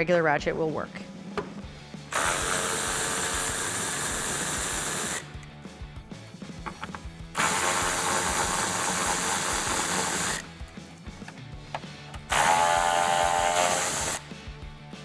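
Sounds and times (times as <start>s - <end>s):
cordless electric ratchet running: 2.1s - 5.4s, 7.4s - 10.5s, 12.3s - 14.2s.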